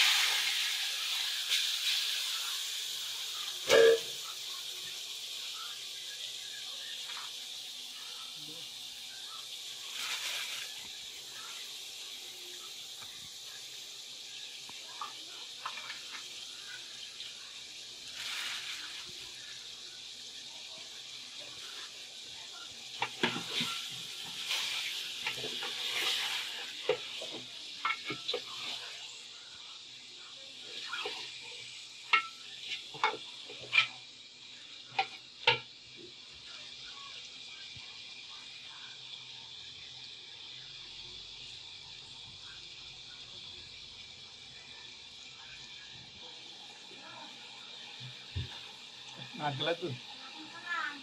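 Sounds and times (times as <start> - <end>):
water splashing in pot: 0.0 - 8.3, 9.0 - 30.0, 30.6 - 37.2
steady hiss: 0.0 - 51.0.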